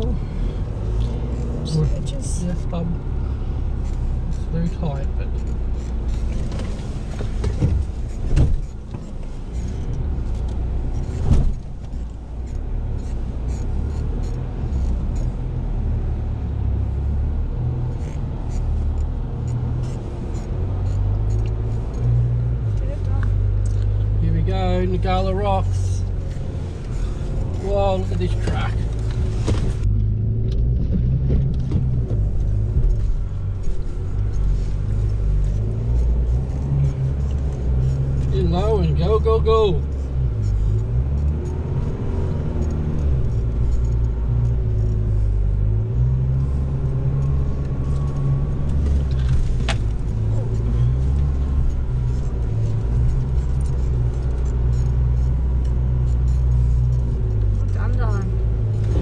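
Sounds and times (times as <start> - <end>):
vehicle engine running low: 0.0 - 59.0
vehicle body knocks and rattles: 28.4 - 33.0.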